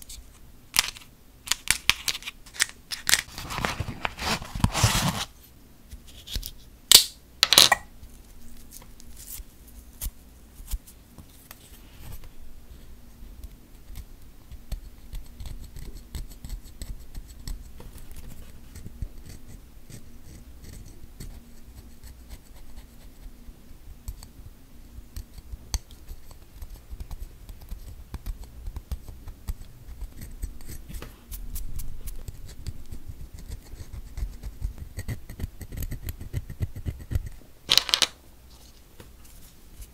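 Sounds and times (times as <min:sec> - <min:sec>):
plastic packaging crackles: 0:00.8 - 0:04.9.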